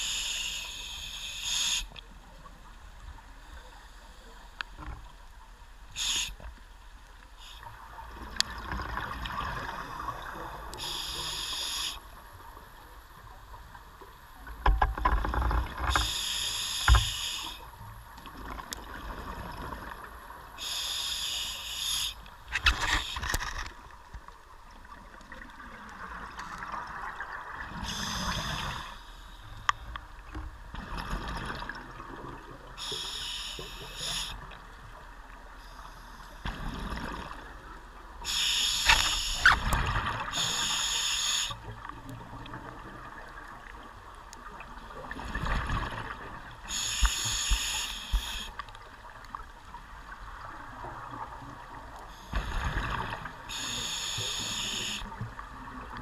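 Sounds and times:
exhaled bubbles gurgling: 7.7s - 11.4s, 30.7s - 32.8s, 36.4s - 37.8s, 38.9s - 40.9s, 41.5s - 48.4s, 49.9s - 56.0s.

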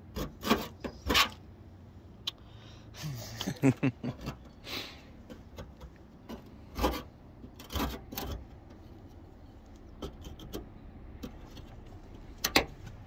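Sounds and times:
chisel scraping rust off metal: 0.0s - 1.4s, 5.3s - 8.6s.

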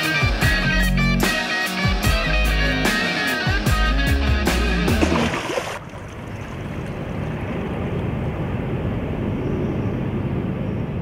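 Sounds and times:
engine drone: 3.7s - 11.0s.

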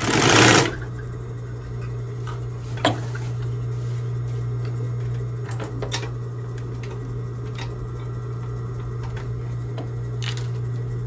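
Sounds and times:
sewing machine motor humming: 0.0s - 0.9s.

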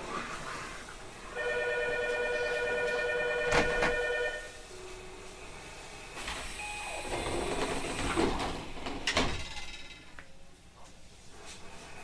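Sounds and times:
train doors sliding: 3.4s - 10.2s.

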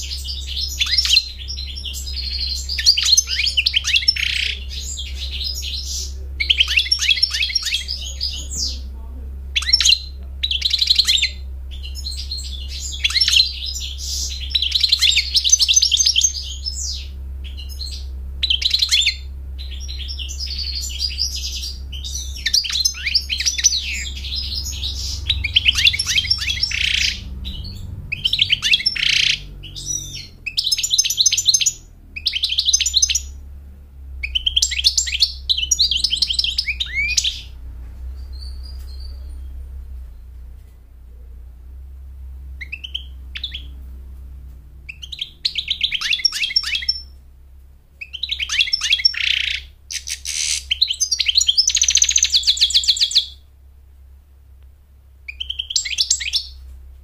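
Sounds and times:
goldfinch twittering song: 0.0s - 8.9s, 9.6s - 33.4s, 34.2s - 39.6s, 42.6s - 43.8s, 44.9s - 47.2s, 48.0s - 53.4s, 55.3s - 56.6s.

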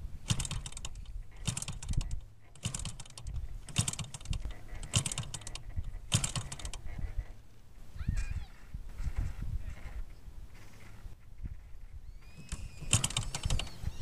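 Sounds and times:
model engine clattering click: 0.2s - 6.9s, 12.4s - 13.8s.

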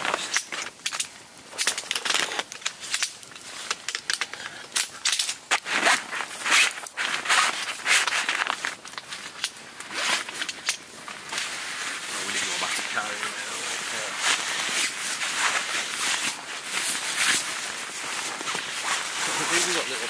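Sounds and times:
nylon fabric rustling: 5.5s - 20.0s.

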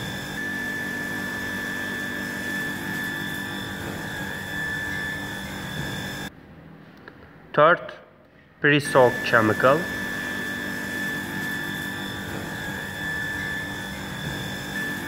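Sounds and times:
car wash pump and motors drone: 0.0s - 6.4s, 8.7s - 15.0s
high whine: 8.7s - 15.0s.

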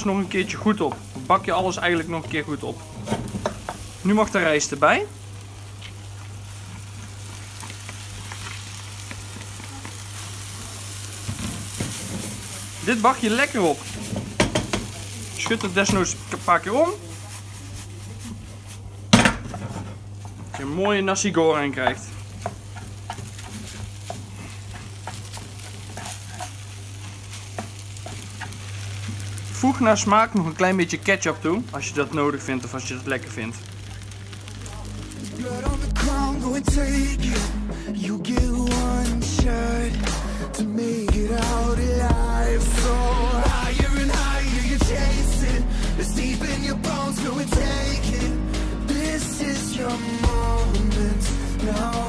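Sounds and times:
food sizzling in a frying pan: 0.0s - 36.9s, 38.4s - 52.0s
spatula scraping: 21.9s - 29.3s.

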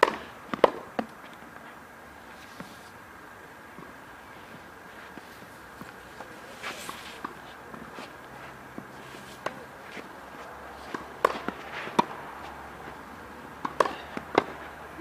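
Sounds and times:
racket hitting tennis ball: 0.0s - 1.2s, 5.0s - 13.0s, 13.6s - 14.8s
footsteps scuffing clay: 4.9s - 13.0s.

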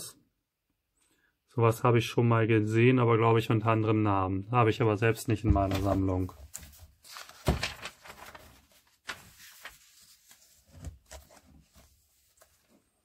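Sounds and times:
magazine pages rustling: 5.5s - 13.0s.

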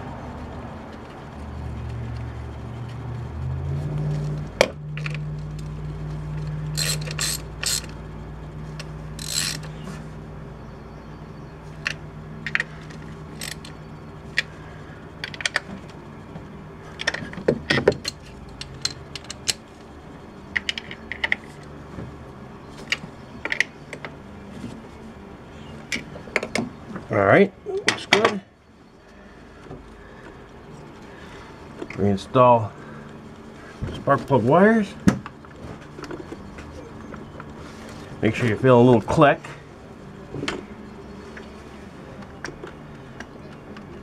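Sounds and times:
ratchet wrench clicking: 6.7s - 8.0s, 9.2s - 9.7s, 13.3s - 13.7s.

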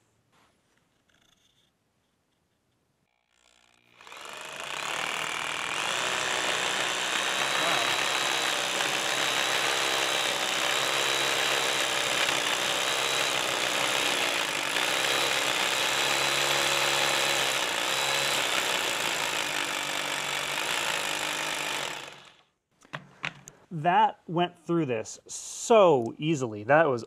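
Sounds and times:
hammer drill boring concrete: 3.3s - 22.4s.

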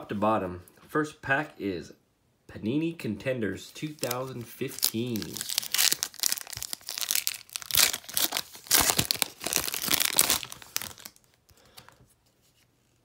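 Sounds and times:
foil wrapper crinkling: 3.9s - 11.7s.

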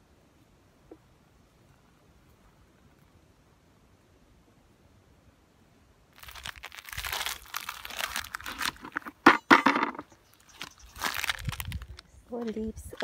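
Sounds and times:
rustling and crinkling handling: 6.2s - 13.0s.

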